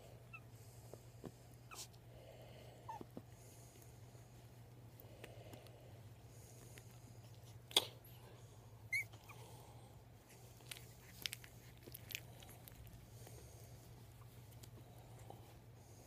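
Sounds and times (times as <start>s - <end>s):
faint steady hum: 0.0s - 16.0s
puppy squeak: 8.9s - 9.4s
puppy chewing clicks and smacks: 10.4s - 13.0s.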